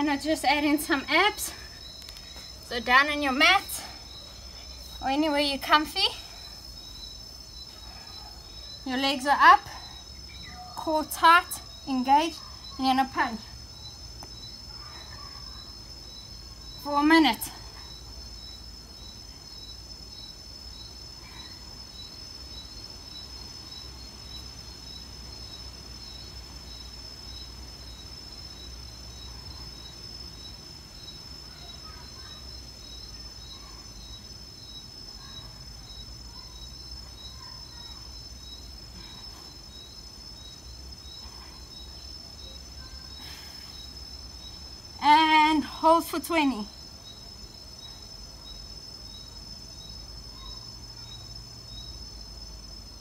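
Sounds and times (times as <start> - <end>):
crickets trilling: 0.0 - 53.0
repeating cricket chirp: 0.0 - 53.0.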